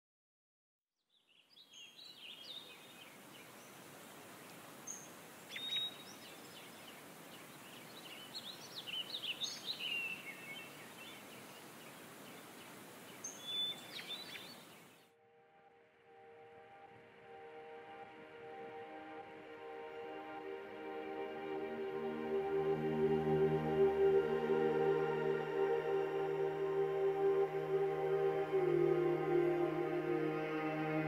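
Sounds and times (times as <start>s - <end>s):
birds chirping and trilling: 1.2s - 3.8s, 4.8s - 15.1s
outdoor ambience hiss: 1.3s - 15.1s, 16.1s - 31.0s.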